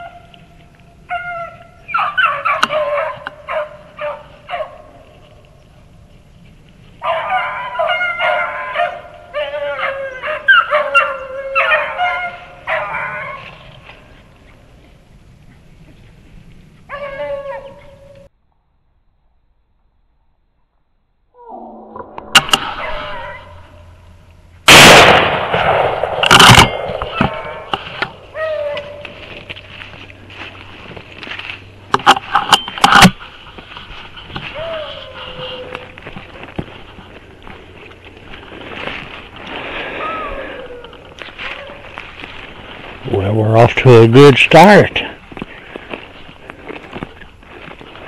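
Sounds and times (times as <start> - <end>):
dogs baying: 1.1 - 5.0, 7.0 - 14.7, 34.4 - 36.5
shotgun blasts: 24.7 - 27.7.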